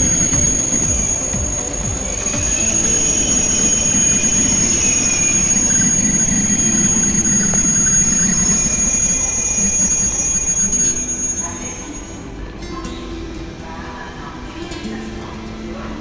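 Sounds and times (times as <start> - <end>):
train carriages rumbling: 0.0 - 9.2
high-pitched squealing whistle: 0.0 - 12.4.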